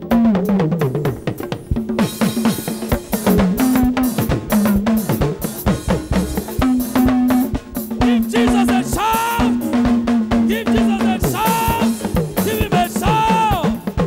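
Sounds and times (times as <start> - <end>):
bending melody line: 0.0 - 14.0
drum kit beat: 0.0 - 14.0
held bass notes: 2.9 - 14.0.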